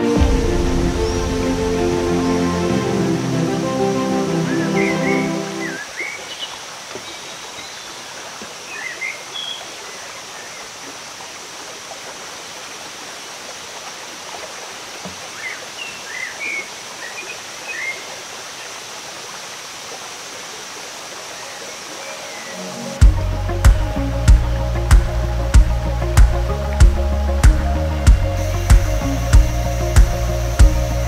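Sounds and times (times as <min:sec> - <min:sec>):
waterfall rushing: 0:00.0 - 0:31.0
bird chirps: 0:04.4 - 0:08.0.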